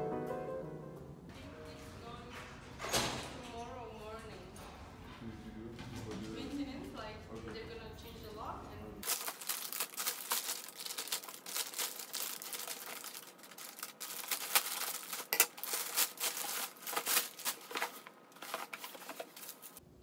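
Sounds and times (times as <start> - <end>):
plastic bag crinkling: 9.0 - 19.8
scissors cutting plastic: 9.0 - 19.8.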